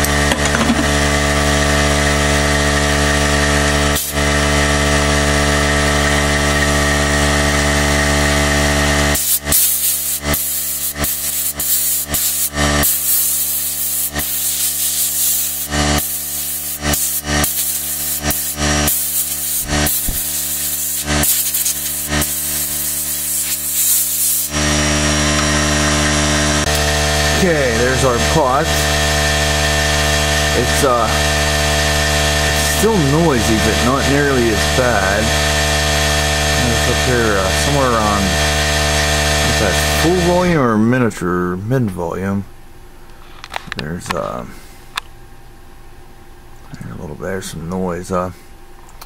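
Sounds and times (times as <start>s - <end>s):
steady machine hum: 0.0s - 49.0s
compressed air blow gun blasts: 3.1s - 27.1s.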